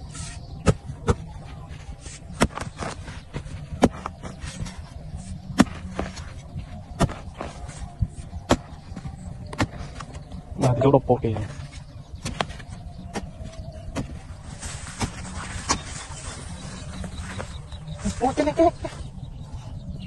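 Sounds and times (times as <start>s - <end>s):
soil crumbling: 2.0s - 18.8s
pick striking hard earth: 2.3s - 4.7s, 5.5s - 6.3s, 6.9s - 7.6s.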